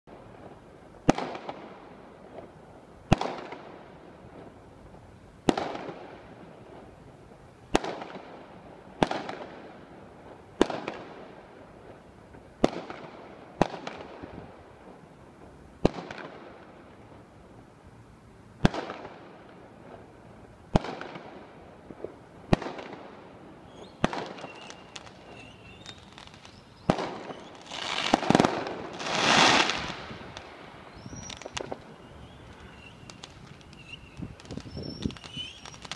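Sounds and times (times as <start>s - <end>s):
fireworks crackling: 0.1s - 35.9s
distant fireworks bangs: 7.7s - 10.0s, 20.7s - 35.9s.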